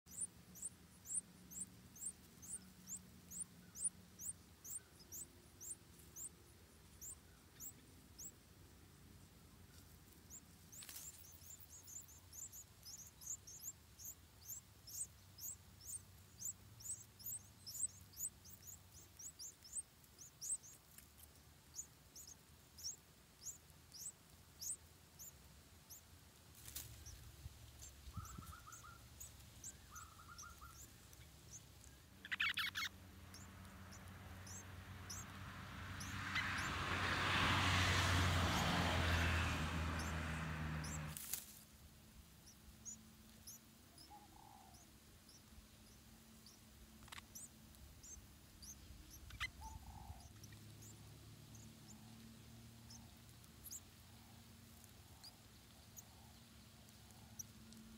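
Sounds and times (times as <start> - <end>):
nestlings begging with high cheeps: 0.1 - 41.4, 42.4 - 57.8.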